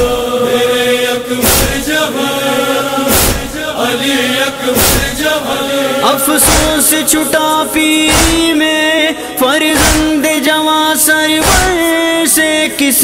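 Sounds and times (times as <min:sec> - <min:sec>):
male chorus chanting: 0:00.0 - 0:13.0
heavy rhythmic thump: 0:01.4 - 0:02.2, 0:03.0 - 0:03.8, 0:04.7 - 0:05.5, 0:06.3 - 0:07.2, 0:08.0 - 0:08.7, 0:09.7 - 0:10.4, 0:11.4 - 0:12.0.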